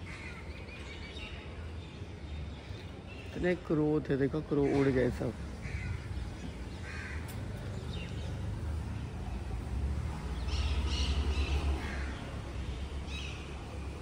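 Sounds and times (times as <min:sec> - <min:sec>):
crows cawing: 0:00.0 - 0:00.5, 0:06.7 - 0:07.4.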